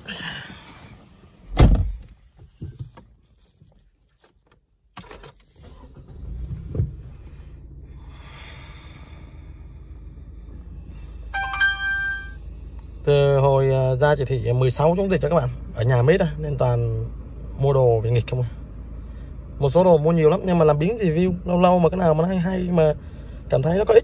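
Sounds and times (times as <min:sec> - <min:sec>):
car door shutting: 0:01.4 - 0:03.1, 0:05.0 - 0:07.1
car engine idling: 0:05.8 - 0:24.0
short electronic chime: 0:11.3 - 0:12.4.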